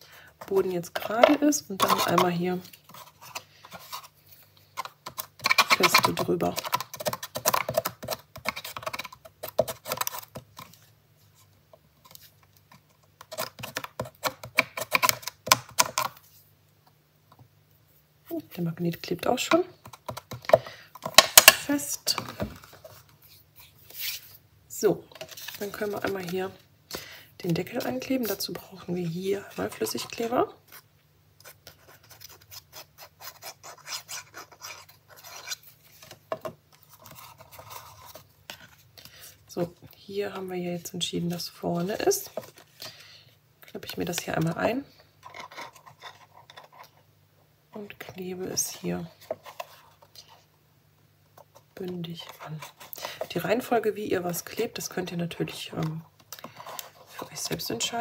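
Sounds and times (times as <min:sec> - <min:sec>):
cardstock being rubbed: 0:31.4 - 0:36.2.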